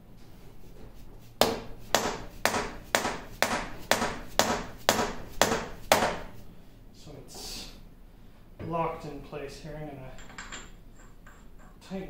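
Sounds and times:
hammer striking metal: 0:01.4 - 0:06.2.

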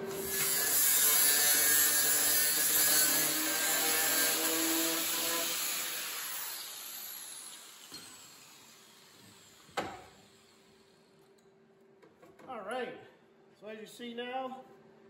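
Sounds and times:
angle grinder grinding steel: 0:00.1 - 0:09.6.

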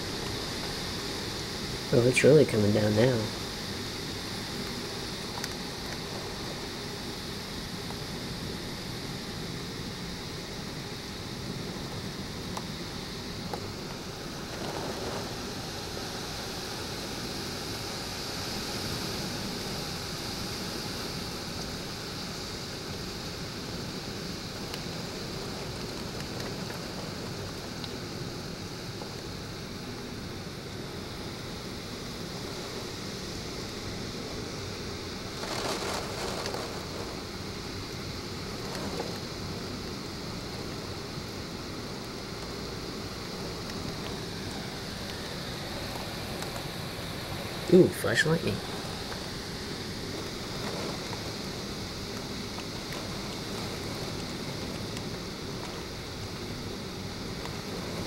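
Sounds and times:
heavy rain pouring on pavement: 0:00.0 - 0:58.0.

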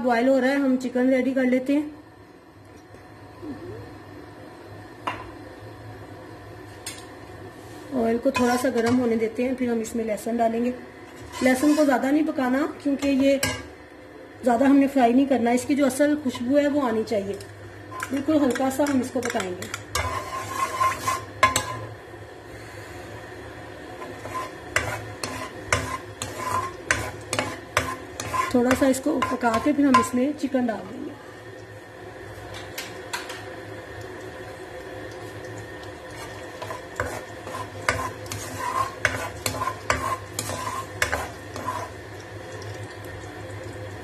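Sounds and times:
steady background hum: 0:00.0 - 0:44.0
spatula scraping wok: 0:08.3 - 0:09.1, 0:11.0 - 0:12.1, 0:13.0 - 0:13.7, 0:17.9 - 0:21.9, 0:24.0 - 0:30.1, 0:36.1 - 0:42.0
garlic sizzling in oil: 0:11.0 - 0:44.0.

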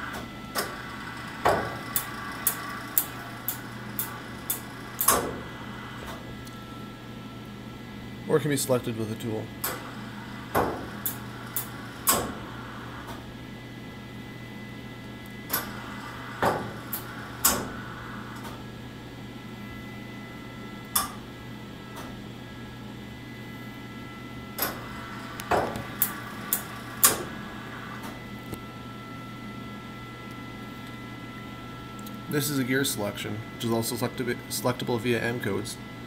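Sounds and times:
steady machine hum: 0:00.0 - 0:36.0
lathe turret clunks: 0:04.0 - 0:06.2.

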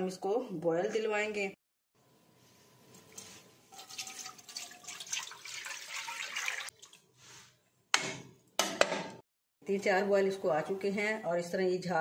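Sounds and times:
water pouring into a pan: 0:03.7 - 0:07.1.

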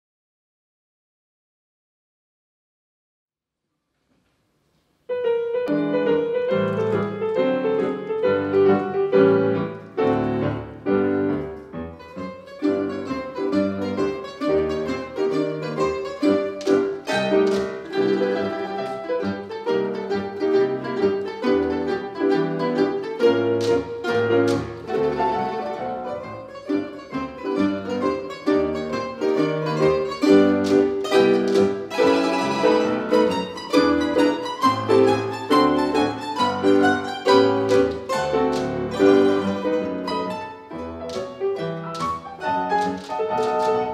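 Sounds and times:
piano accompaniment: 0:04.7 - 0:43.9
plucked string ensemble: 0:05.5 - 0:43.9.

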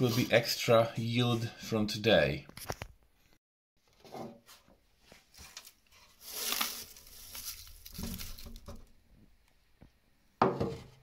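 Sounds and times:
dry flakes rustling and scraping: 0:05.1 - 0:08.9.

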